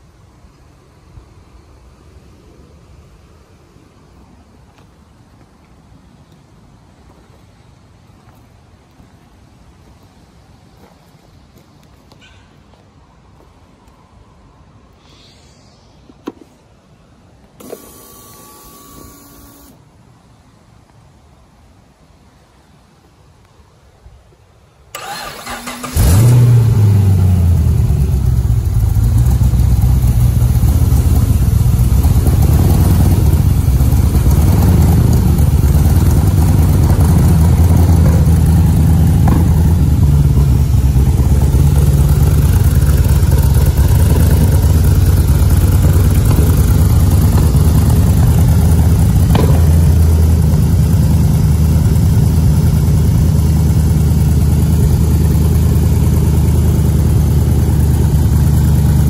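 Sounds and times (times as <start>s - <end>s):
starter motor cranking: 25.0s - 26.5s
car engine idling: 25.0s - 59.0s.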